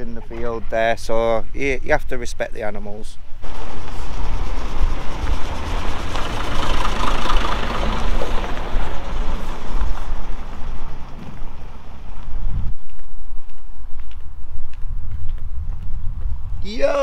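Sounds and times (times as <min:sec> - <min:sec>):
truck diesel engine rumbling: 0:03.4 - 0:12.5.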